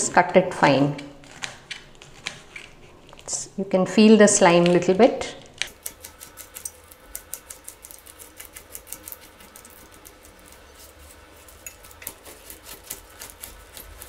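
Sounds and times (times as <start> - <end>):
knife chopping on wooden board: 11.8 - 14.0.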